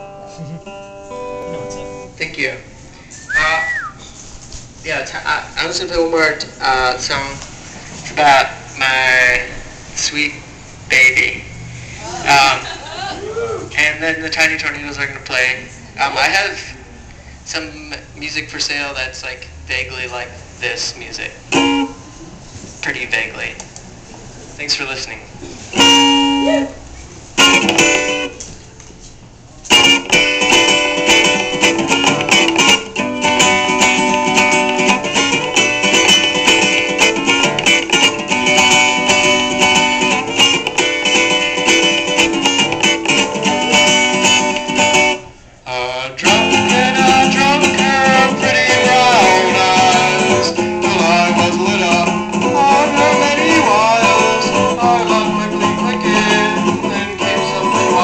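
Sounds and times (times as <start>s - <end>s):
guitar strummed in chords: 0.0s - 2.2s, 21.5s - 22.0s, 25.8s - 26.6s, 27.4s - 28.4s, 29.7s - 45.3s, 46.2s - 58.0s.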